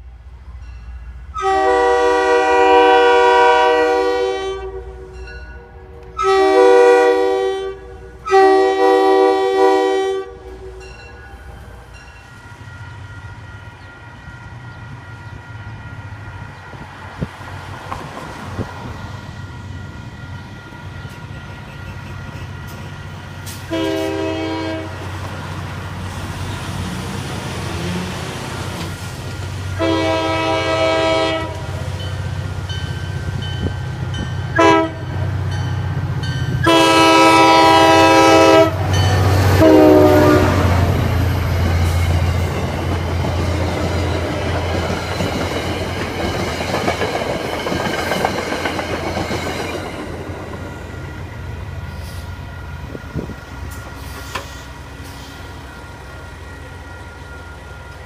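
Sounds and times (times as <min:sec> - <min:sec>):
approaching train rumble: 0:00.0 - 0:58.0
locomotive horn blasts: 0:01.3 - 0:11.2, 0:23.6 - 0:25.1, 0:29.7 - 0:31.8, 0:34.5 - 0:35.3, 0:36.6 - 0:40.9.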